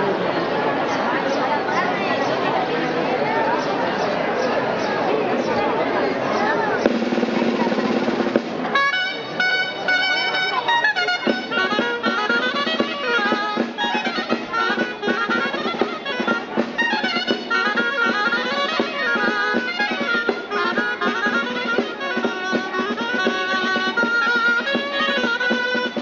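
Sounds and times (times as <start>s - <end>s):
reedy wind instrument folk melody: 6.8s - 26.0s.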